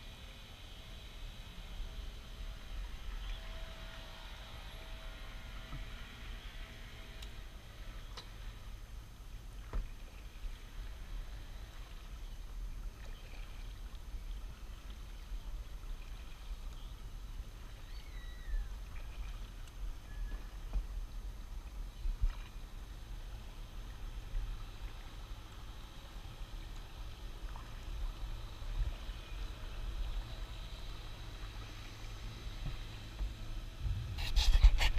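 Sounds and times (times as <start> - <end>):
paddle strokes in water: 9.5 - 17.9, 18.7 - 34.9
steady low rumble: 18.6 - 34.9.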